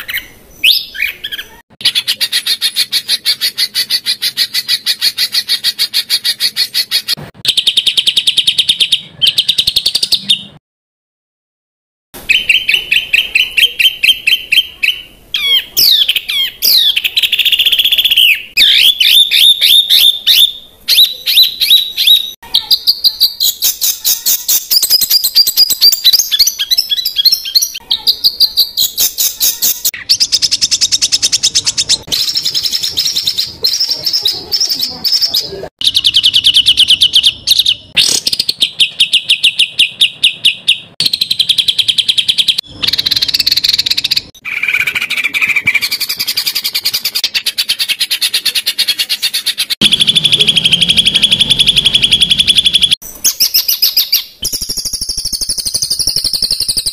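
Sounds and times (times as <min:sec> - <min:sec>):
songbird trills and chattering: 0:12.3 - 0:56.9.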